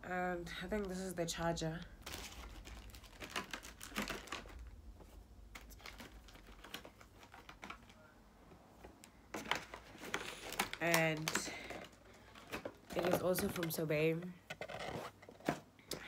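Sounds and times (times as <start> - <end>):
plastic packaging clicking: 2.0 - 4.7, 5.5 - 8.0, 9.0 - 13.8.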